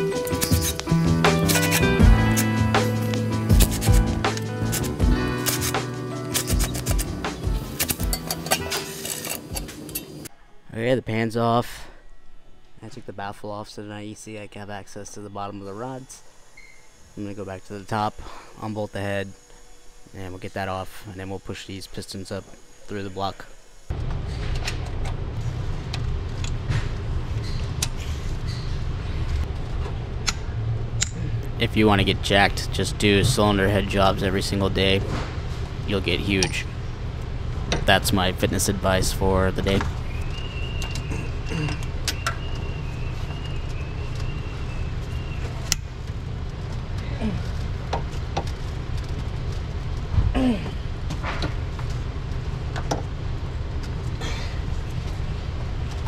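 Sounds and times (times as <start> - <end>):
steady low rumble: 23.9 - 41.6.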